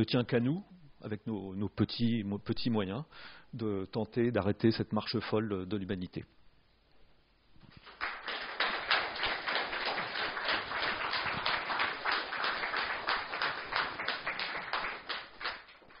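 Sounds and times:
audience applause: 7.8 - 16.0.

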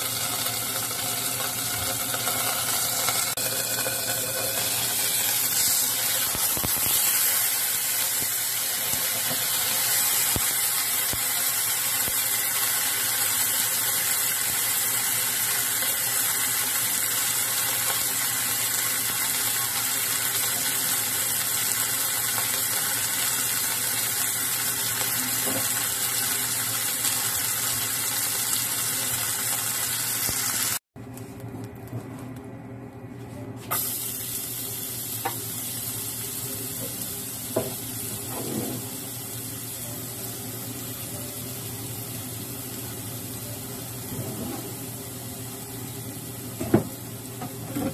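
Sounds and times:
chicken frying in oil: 0.0 - 30.8
hot fat sizzling in pan: 0.0 - 30.8, 33.7 - 47.9.

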